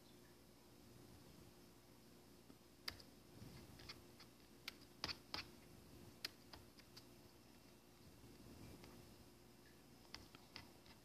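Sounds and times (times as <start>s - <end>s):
faint steady hum: 0.0s - 11.0s
laptop keys typing: 2.8s - 7.1s, 10.0s - 11.0s.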